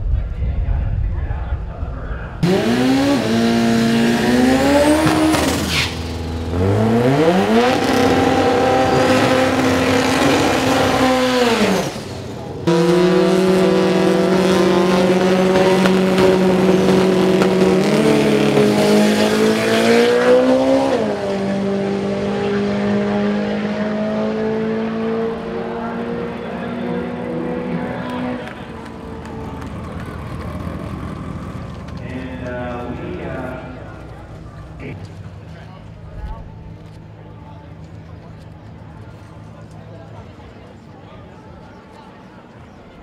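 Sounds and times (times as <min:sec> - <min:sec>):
race car engines revving: 0:01.3 - 0:43.0
tyre squeal: 0:05.3 - 0:06.1.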